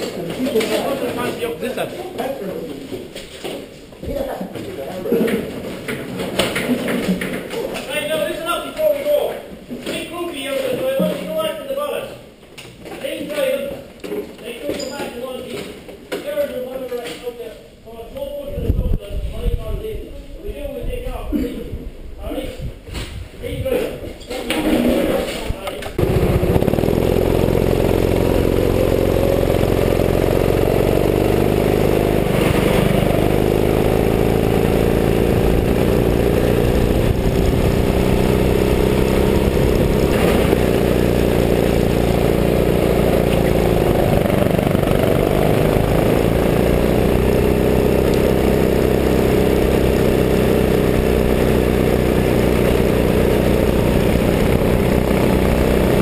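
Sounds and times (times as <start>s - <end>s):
go-kart engine revving: 0.0s - 2.5s, 5.0s - 8.9s, 24.5s - 56.0s.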